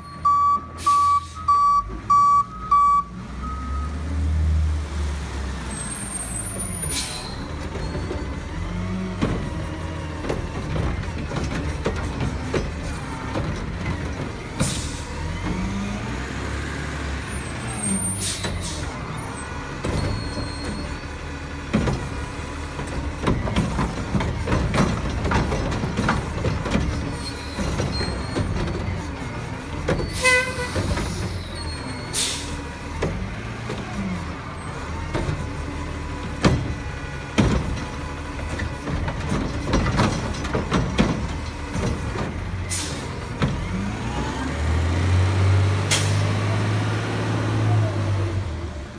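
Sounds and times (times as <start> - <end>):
garbage truck engine revving: 3.2 - 48.9
air brake hisses: 32.1 - 32.6.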